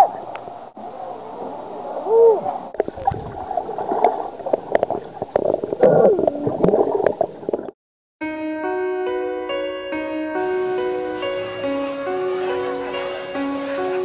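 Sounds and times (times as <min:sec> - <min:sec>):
water gurgling and sloshing: 0:00.0 - 0:07.7
music with held notes: 0:08.2 - 0:14.0.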